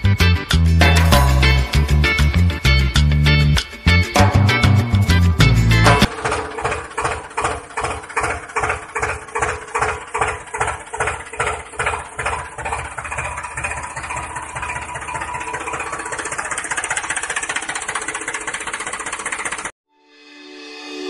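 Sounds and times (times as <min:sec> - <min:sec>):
tractor diesel engine chugging: 0:04.1 - 0:19.7.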